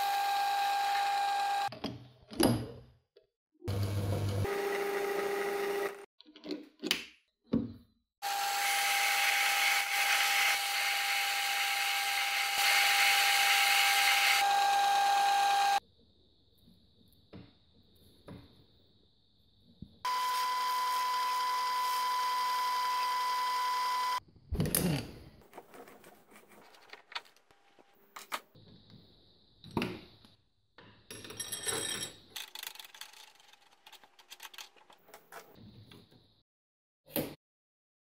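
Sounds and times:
high-pitched machine whine: 20.1s - 24.2s
metal tools clinking: 31.2s - 35.0s.

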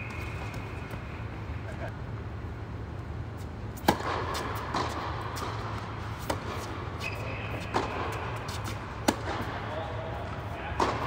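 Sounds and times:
tennis ball bounce: 3.8s - 6.7s, 7.6s - 9.5s
tennis racket hitting ball: 3.8s - 9.5s.

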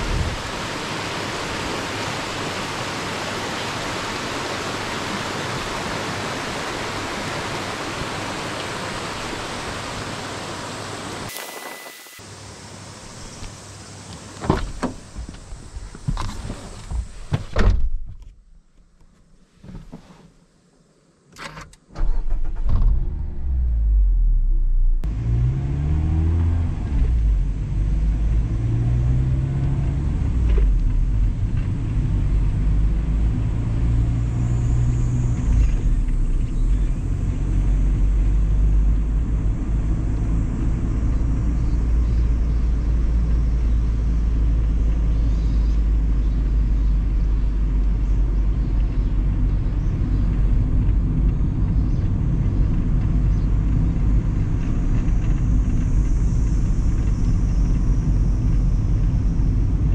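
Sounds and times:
road noise: 0.0s - 17.5s, 21.9s - 59.9s
car engine rumble: 21.9s - 59.9s.

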